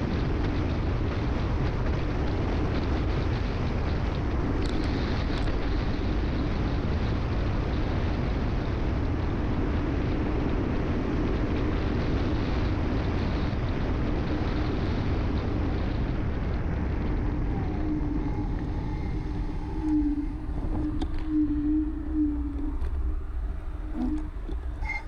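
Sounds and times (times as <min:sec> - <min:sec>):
wind rushing over microphone: 0:00.0 - 0:25.0
steady hum: 0:14.4 - 0:25.0.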